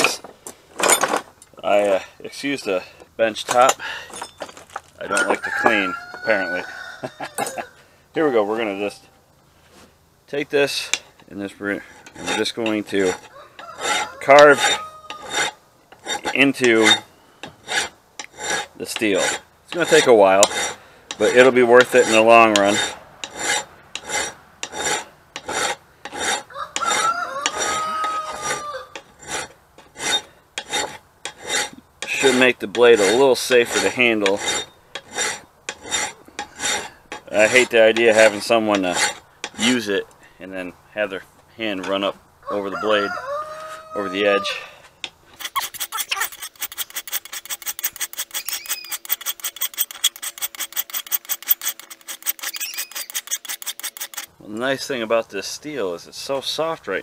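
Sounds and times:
file rasping on steel: 11.8 - 39.8, 45.3 - 54.3.

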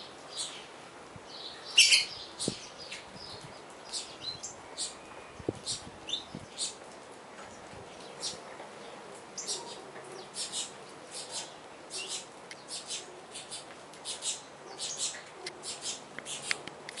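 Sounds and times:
finches chirping: 1.4 - 6.8, 9.4 - 16.6.

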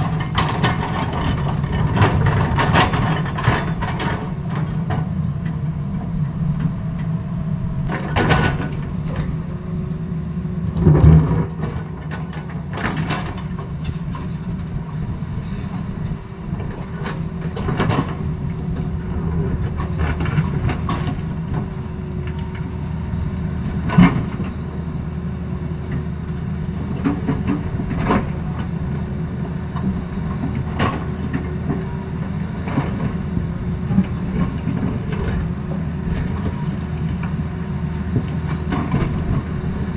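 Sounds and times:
excavator bucket clattering on rock: 0.0 - 4.4, 7.9 - 9.4
diesel engine running: 0.0 - 39.9.

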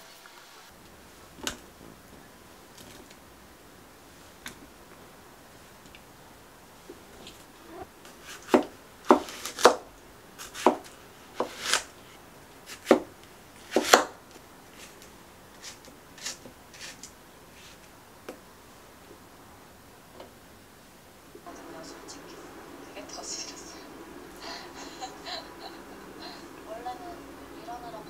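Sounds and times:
knife cutting melon: 8.1 - 9.8, 10.4 - 12.0, 12.6 - 14.1.

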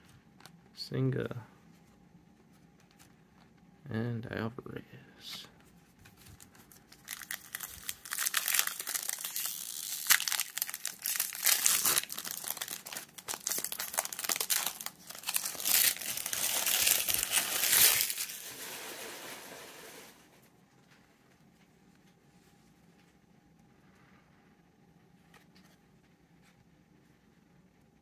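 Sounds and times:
foil wrapper tearing and crinkling: 6.3 - 19.1.

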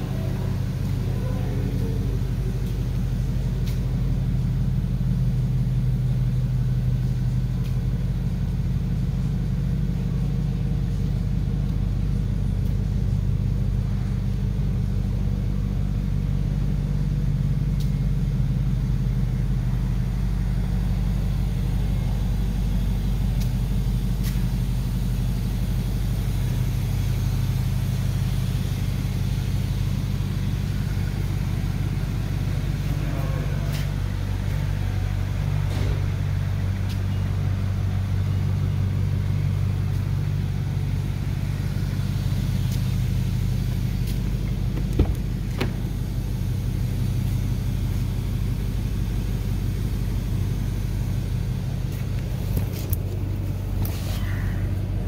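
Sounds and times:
car engine idling: 0.0 - 55.0.

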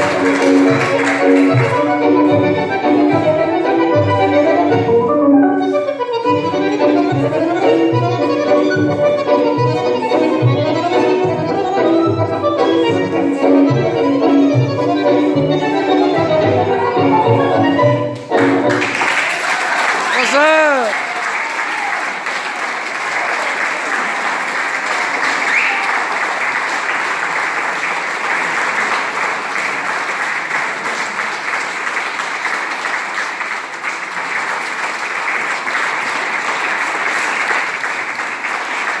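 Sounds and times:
audience applause: 0.0 - 2.1, 18.3 - 39.0.

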